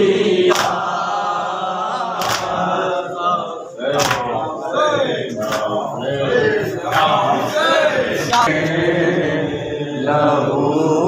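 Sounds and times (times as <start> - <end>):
men chanting together: 0.0 - 11.0
chest-beating slaps: 0.5 - 0.9, 2.2 - 2.6, 4.0 - 4.4, 5.3 - 5.7.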